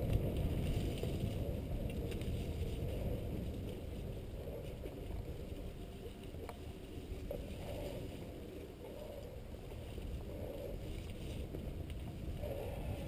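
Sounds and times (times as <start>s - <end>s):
bike tyres rumbling on dirt: 0.0s - 13.0s.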